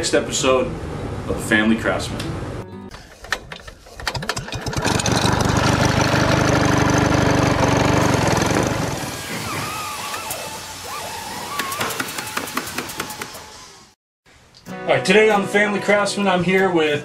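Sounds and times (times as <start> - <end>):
film projector clatter: 4.0 - 8.9.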